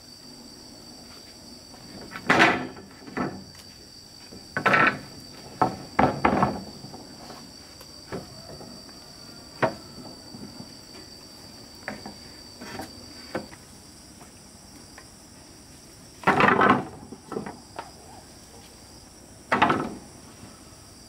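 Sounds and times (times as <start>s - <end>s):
wooden planks knocking and clattering: 2.0s - 3.5s, 4.4s - 7.2s, 16.2s - 17.6s, 19.5s - 20.1s.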